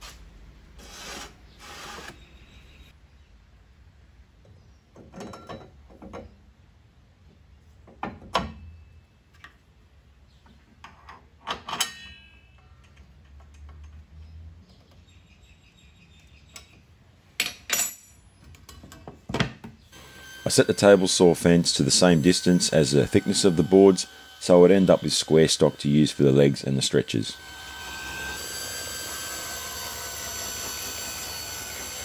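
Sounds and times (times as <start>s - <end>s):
metal parts clinking on saw table: 11.5s - 14.0s, 17.4s - 19.0s.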